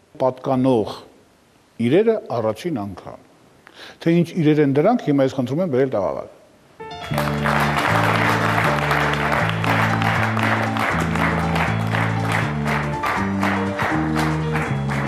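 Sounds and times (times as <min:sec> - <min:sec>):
music with bass line: 0:06.8 - 0:15.0
audience applauding: 0:06.9 - 0:15.0.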